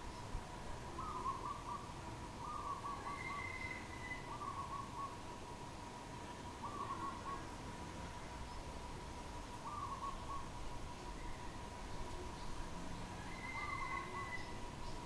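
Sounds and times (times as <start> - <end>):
dove cooing: 0.9 - 5.1, 6.6 - 7.4, 9.6 - 10.5, 13.2 - 14.6.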